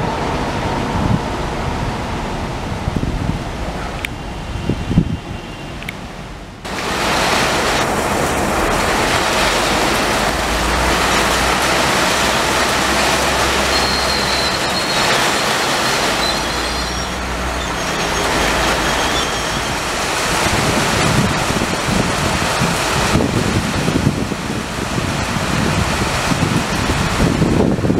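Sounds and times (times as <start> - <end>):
train coaches rolling past: 0.0 - 23.8
heavy rain: 0.0 - 27.9
high wheel squeal: 12.8 - 20.0.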